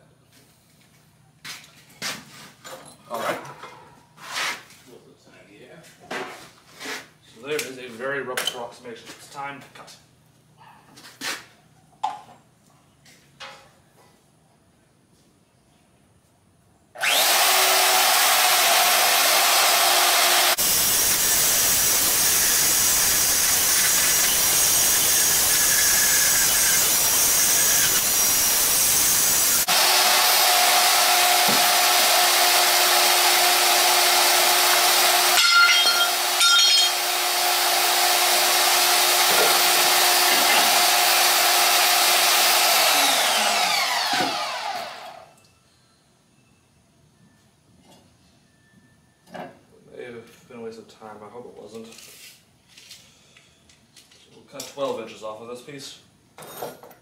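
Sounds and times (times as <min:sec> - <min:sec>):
power tool cutting steel: 0:17.0 - 0:45.4.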